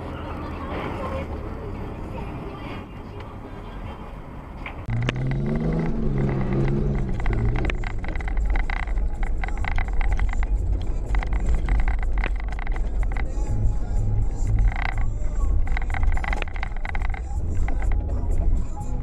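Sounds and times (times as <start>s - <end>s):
car rumble on snowy road: 4.4s - 19.0s
quick sharp clicks: 4.9s - 13.5s
wavering engine tone: 4.9s - 19.0s.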